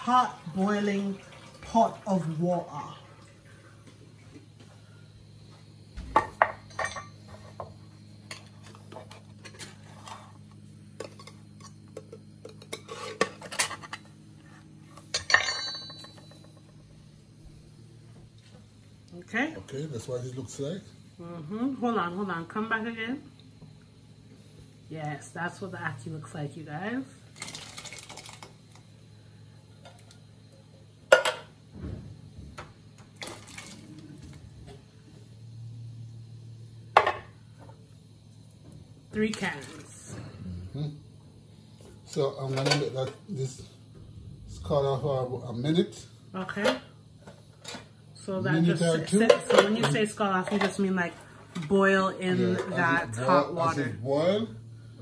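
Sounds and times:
liquid splashing into a pot: 0:00.0 - 0:02.1, 0:33.2 - 0:34.0
low steady hum: 0:00.0 - 0:55.0.

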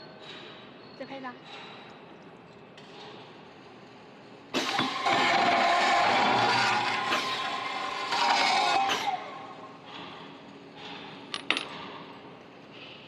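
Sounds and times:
circular saw cutting steel: 0:04.6 - 0:09.7.

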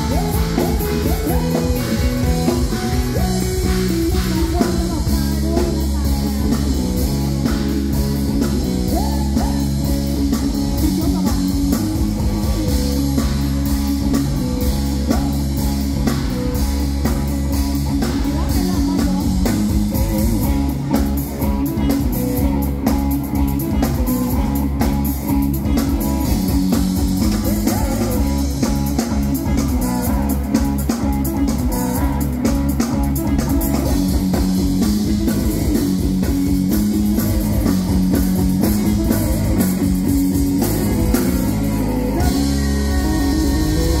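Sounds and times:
woman singing: 0:00.0 - 0:07.1, 0:18.1 - 0:19.7, 0:42.0 - 0:44.0
bass guitar: 0:00.0 - 0:44.0
drum kit: 0:00.0 - 0:44.0
electric guitar: 0:00.0 - 0:44.0.

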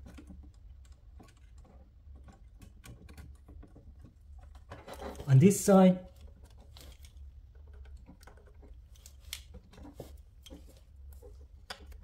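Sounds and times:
small plastic clicks and taps: 0:06.1 - 0:12.0.

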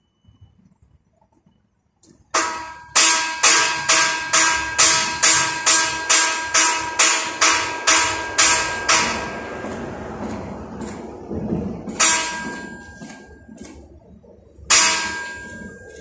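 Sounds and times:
steel beam clanging when struck: 0:02.4 - 0:13.5, 0:14.7 - 0:16.0.

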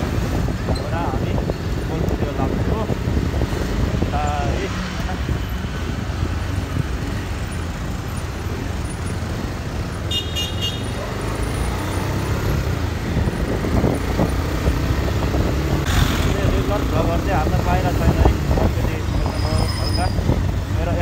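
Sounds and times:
road and traffic noise: 0:00.0 - 0:21.0
vehicle horn toot: 0:10.1 - 0:10.9.

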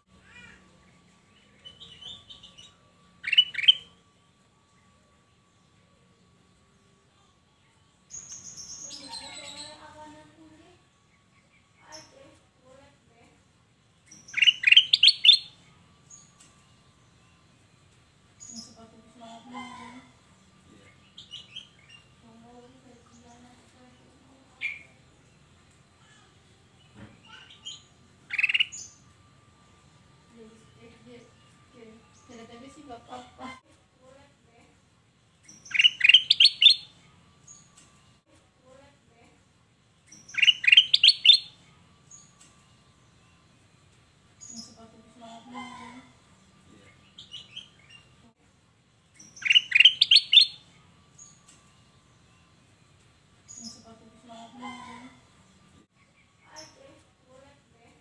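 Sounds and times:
bird chirps: 0:00.3 - 0:04.1, 0:14.0 - 0:17.4, 0:26.9 - 0:29.2, 0:35.4 - 0:36.9, 0:40.1 - 0:43.4, 0:49.1 - 0:50.6
bird chirping and whistling: 0:03.2 - 0:03.9, 0:14.1 - 0:15.6, 0:35.5 - 0:36.9, 0:40.1 - 0:41.5, 0:49.2 - 0:50.6.

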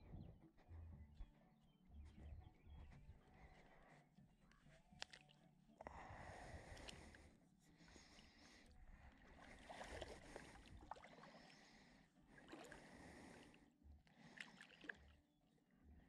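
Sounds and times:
water swishing and lapping: 0:04.9 - 0:15.2
small water splashes: 0:05.0 - 0:05.4, 0:09.1 - 0:15.2.

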